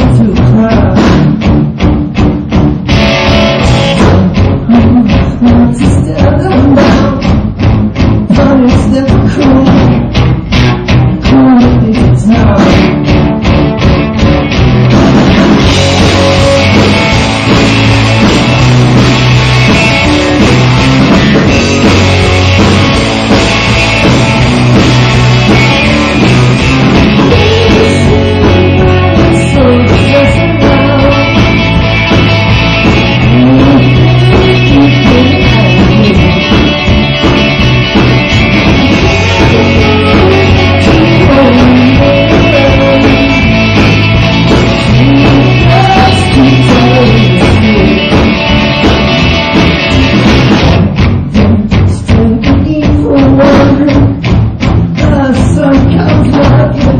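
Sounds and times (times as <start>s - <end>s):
person singing: 0.0s - 1.4s, 3.7s - 7.4s, 8.3s - 10.0s, 11.2s - 13.2s, 15.6s - 18.6s, 25.5s - 31.9s, 32.9s - 37.4s, 38.4s - 49.1s, 51.3s - 54.3s, 55.0s - 56.9s
drums: 0.0s - 56.9s
electric guitar: 0.0s - 56.9s.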